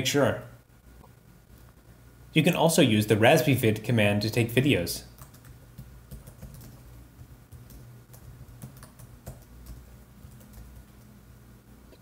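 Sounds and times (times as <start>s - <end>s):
low steady hum: 0.0s - 12.0s
soft keyboard typing: 5.1s - 11.2s.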